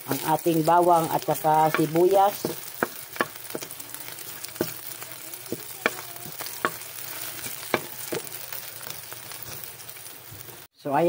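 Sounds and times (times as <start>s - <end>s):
garlic and onion sizzling: 0.0s - 11.0s
wooden spatula knocking pan: 0.7s - 8.5s.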